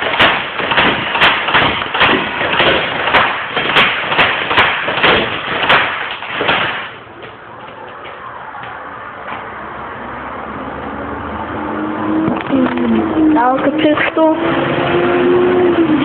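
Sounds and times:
airsoft pistol firing sharp clacks: 0.0s - 7.0s.

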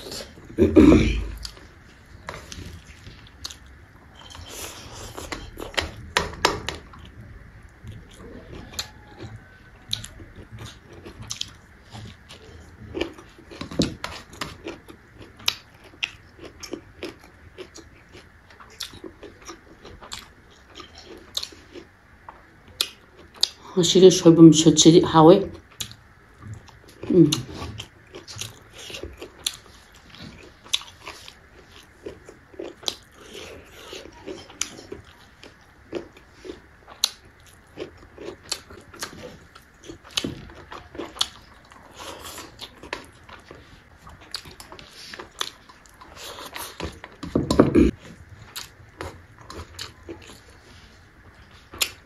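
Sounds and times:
chewing and crunching: 0.0s - 23.7s, 25.4s - 52.0s.

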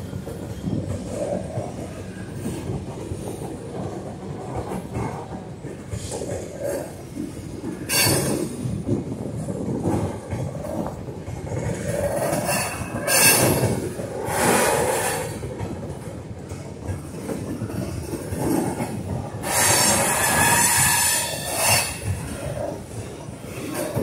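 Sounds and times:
train wheels clattering on rail: 0.0s - 24.0s
high-pitched wheel squeals: 12.4s - 13.8s, 19.4s - 22.1s.

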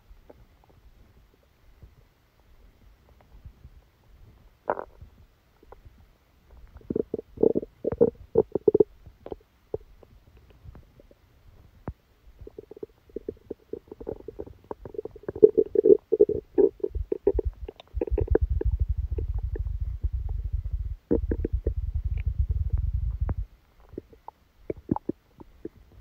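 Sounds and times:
stomach growling: 4.6s - 5.9s, 6.5s - 11.2s, 12.4s - 26.0s
stomach gurgling: 4.6s - 26.0s.

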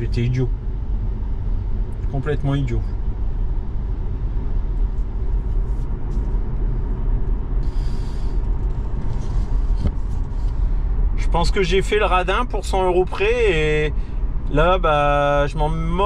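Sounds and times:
road and tyre rumble: 0.0s - 16.0s.

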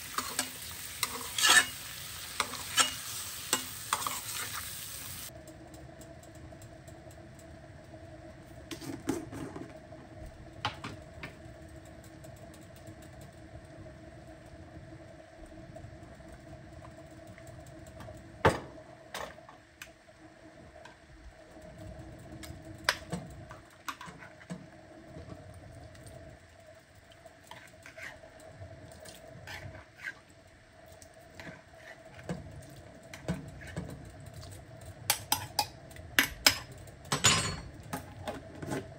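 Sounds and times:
faint steady hum: 0.0s - 38.9s
utensils and cookware knocking: 0.1s - 4.4s, 35.1s - 37.8s.

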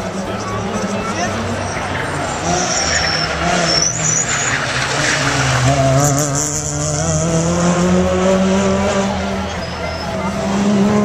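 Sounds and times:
tyres squealing: 0.0s - 6.4s
car engines at high revs: 0.0s - 11.0s.

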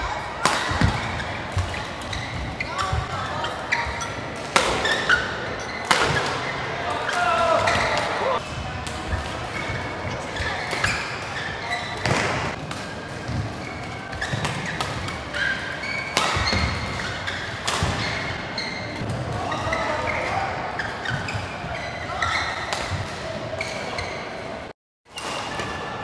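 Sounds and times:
rackets hitting shuttlecock: 0.4s - 3.2s, 3.8s - 18.4s
shoes squeaking on court: 0.6s - 8.4s, 9.1s - 25.5s.

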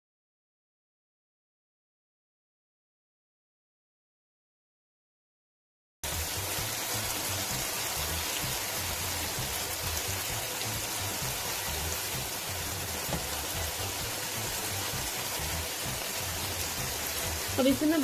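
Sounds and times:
food sizzling in hot oil: 6.0s - 18.0s.

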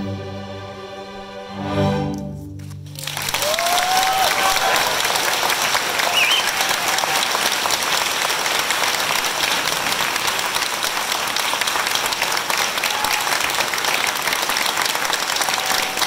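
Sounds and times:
audience applauding: 2.6s - 16.0s
cheers and whistles: 3.3s - 5.2s, 5.8s - 7.5s, 12.8s - 13.5s, 15.3s - 16.0s.

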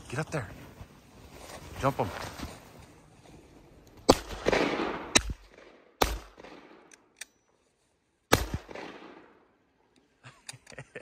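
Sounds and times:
gunshots with echo: 4.1s - 6.9s, 8.3s - 9.4s.

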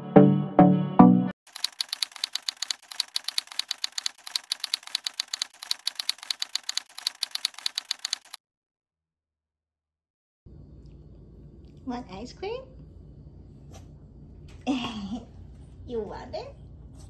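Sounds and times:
typewriter key clicks: 1.5s - 8.4s.

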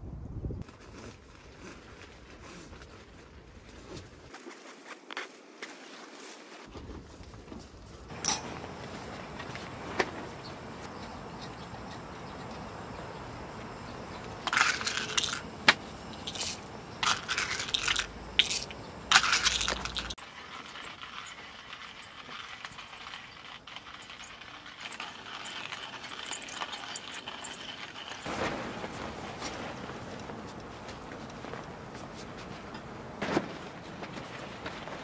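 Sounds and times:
small hard objects clinking: 8.1s - 28.4s.

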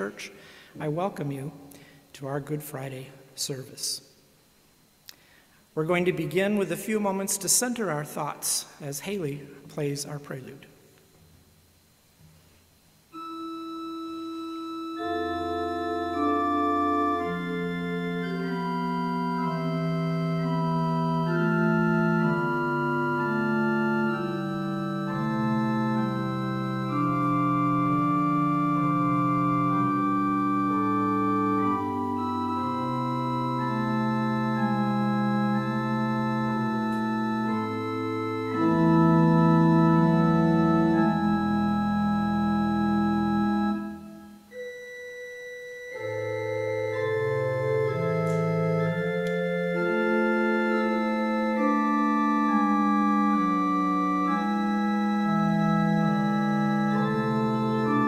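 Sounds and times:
low organ pedal bass: 11.3s - 58.0s
organ playing held chords: 11.3s - 58.0s.

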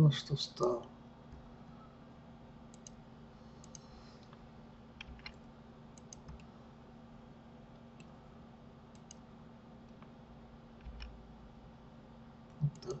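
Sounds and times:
low steady hum: 0.0s - 13.0s
faint computer mouse clicks: 2.7s - 3.0s, 3.6s - 4.4s, 6.0s - 6.5s, 8.9s - 9.2s.

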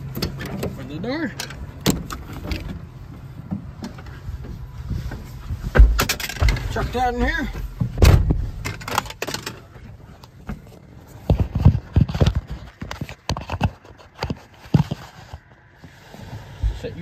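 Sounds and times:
knocks and thumps in cab: 1.5s - 9.6s.

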